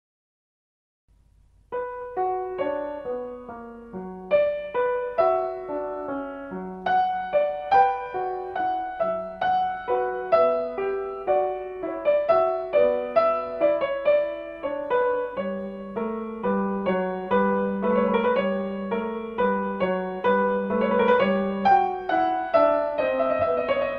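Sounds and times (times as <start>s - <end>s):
solo piano music: 1.1s - 23.9s.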